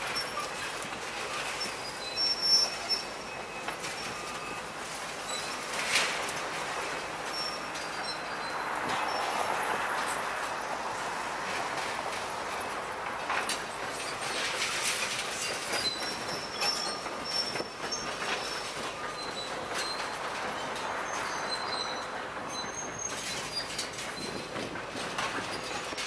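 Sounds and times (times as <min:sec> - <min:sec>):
metal squealing being crushed: 0:00.1 - 0:09.4.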